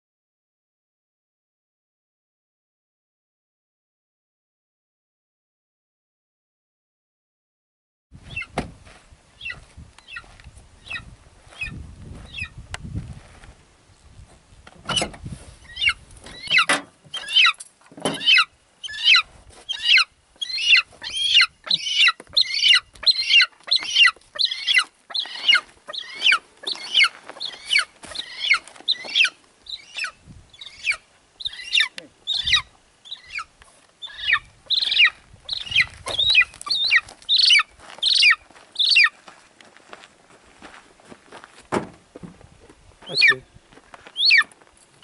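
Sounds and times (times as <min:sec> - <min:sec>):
eagle yelping calls: 0:15.6 - 0:39.1, 0:43.0 - 0:43.5, 0:44.1 - 0:44.5.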